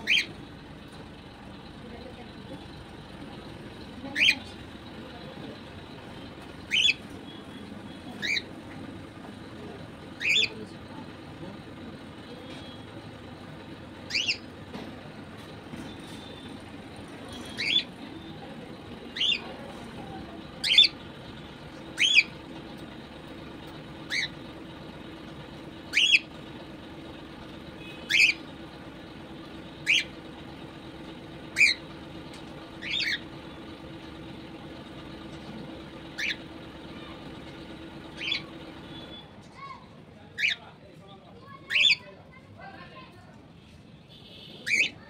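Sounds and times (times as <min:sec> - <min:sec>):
cockatiel chirping: 0:00.0 - 0:00.4, 0:04.1 - 0:04.5, 0:06.7 - 0:07.1, 0:08.1 - 0:08.5, 0:10.2 - 0:10.6, 0:14.1 - 0:14.5, 0:17.3 - 0:17.9, 0:19.1 - 0:19.4, 0:20.6 - 0:21.0, 0:22.0 - 0:22.3, 0:24.1 - 0:24.3, 0:25.9 - 0:26.3, 0:28.0 - 0:28.4, 0:29.8 - 0:30.1, 0:31.6 - 0:31.8, 0:32.8 - 0:33.2, 0:36.2 - 0:36.4, 0:38.2 - 0:38.5, 0:44.6 - 0:45.0.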